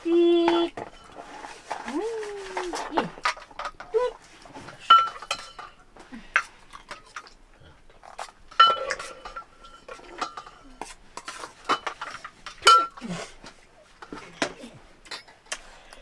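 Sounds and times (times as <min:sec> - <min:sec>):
steel pots and plates clinking: 0:04.6 - 0:07.3, 0:08.0 - 0:13.2, 0:15.1 - 0:15.6.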